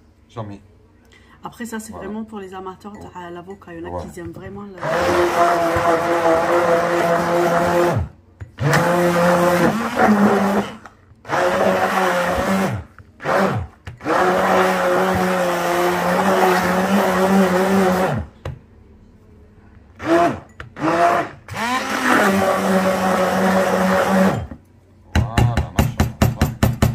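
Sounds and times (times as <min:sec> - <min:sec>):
immersion blender whirring: 0:04.8 - 0:18.4, 0:20.0 - 0:24.6.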